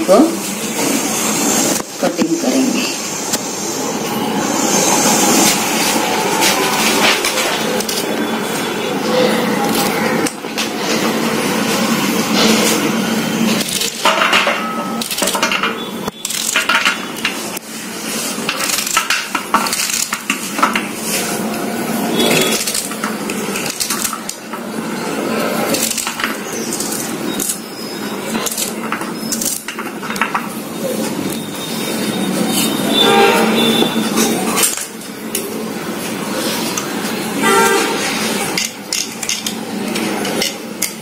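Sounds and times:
pieces dropping onto metal plate: 0:13.8 - 0:17.0.

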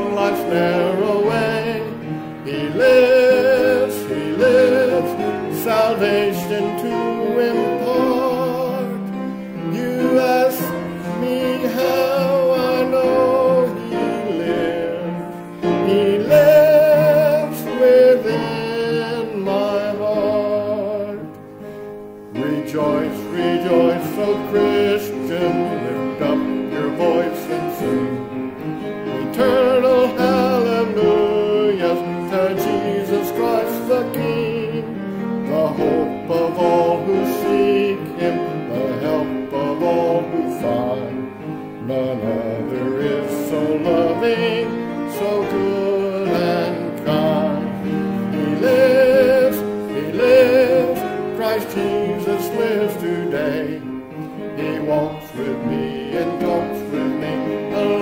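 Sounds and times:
instrumental accompaniment: 0:00.0 - 0:58.0
voices singing a hymn: 0:00.0 - 0:58.0.

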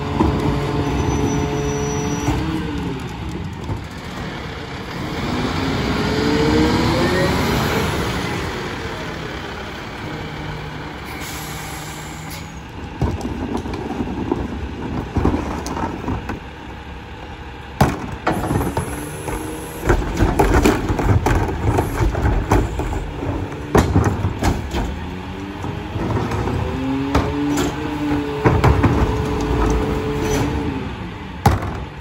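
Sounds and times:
garbage truck engine running: 0:00.0 - 0:32.0
air brakes hissing: 0:11.0 - 0:12.7
trash thudding into hopper: 0:17.8 - 0:30.8.

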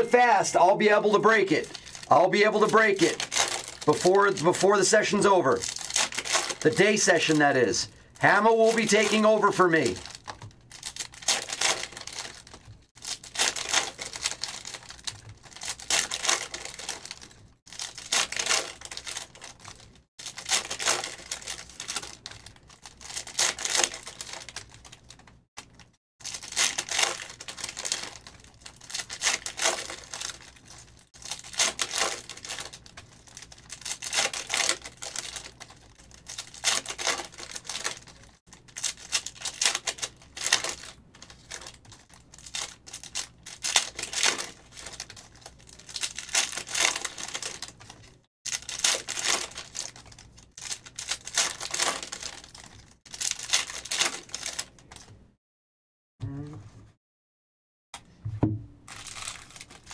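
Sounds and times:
foil card packs tearing: 0:00.1 - 0:55.1, 0:58.9 - 0:59.9.

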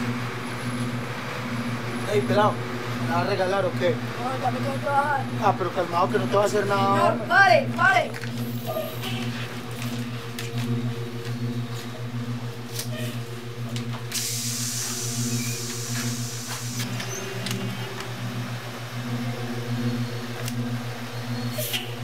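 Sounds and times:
bus engine idling: 0:00.0 - 0:22.0
compressed air hiss: 0:14.1 - 0:17.0.

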